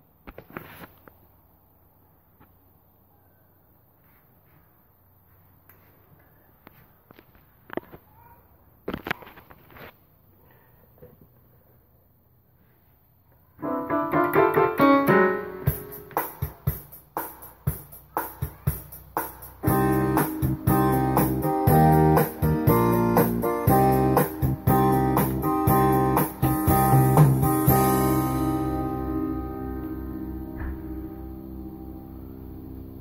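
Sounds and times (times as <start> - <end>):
keyboard bass accompaniment: 13.6 - 16.5, 18.8 - 33.0
keyboard piano chords: 13.6 - 16.8, 19.6 - 33.0
keyboard drum beat: 13.6 - 29.8.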